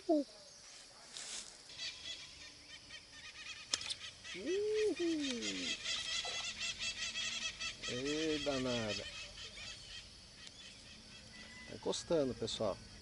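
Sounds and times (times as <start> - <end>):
sharp click: 3.7 - 4.0.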